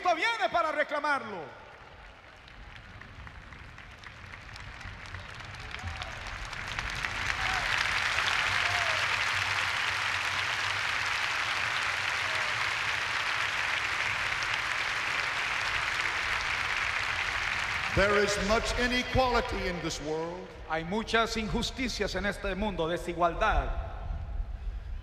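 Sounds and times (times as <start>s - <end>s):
crowd applauding: 1.2s - 20.3s.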